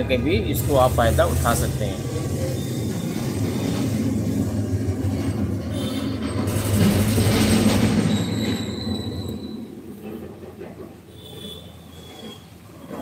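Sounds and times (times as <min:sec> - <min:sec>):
passing vehicle rumbling: 0:00.0 - 0:11.7
thin high squealing tones: 0:01.1 - 0:04.3, 0:08.0 - 0:09.8, 0:11.1 - 0:13.0.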